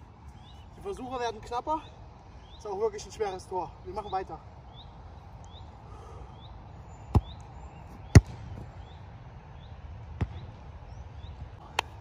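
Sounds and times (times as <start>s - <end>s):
bird chirping: 0.2s - 11.6s
football kicked on grass: 7.1s - 8.8s, 10.1s - 10.6s.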